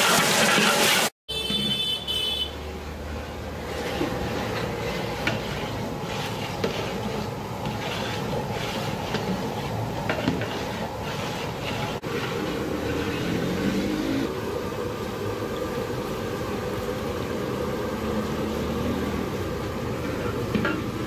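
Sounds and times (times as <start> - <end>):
ladle scraping metal pot: 3.2 - 14.2.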